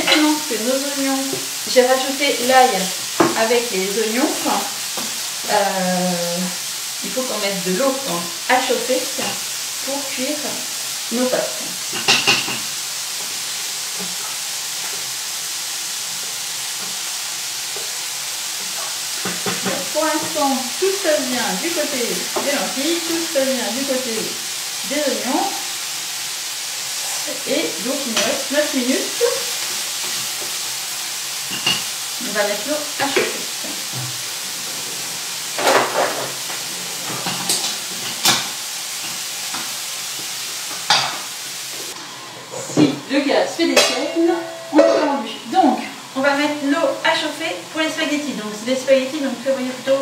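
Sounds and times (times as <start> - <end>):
onions sizzling in oil: 0.0 - 50.0
utensils clinking on pans: 11.6 - 12.8, 18.6 - 20.6, 31.4 - 32.0, 33.0 - 41.3.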